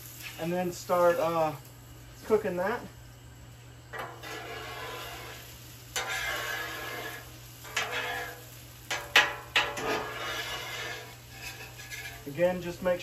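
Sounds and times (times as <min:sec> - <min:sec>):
metal spatula scraping griddle: 0:00.0 - 0:01.2, 0:03.9 - 0:13.0
food sizzling: 0:00.0 - 0:13.0
spatula clanking on griddle: 0:03.9 - 0:12.4.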